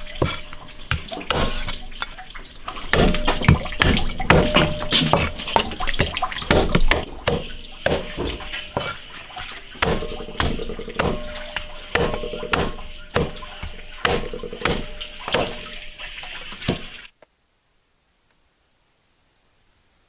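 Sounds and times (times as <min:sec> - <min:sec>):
cleaver chopping on wooden block: 0:00.0 - 0:01.8, 0:02.9 - 0:09.0, 0:09.8 - 0:15.8, 0:16.6 - 0:17.0.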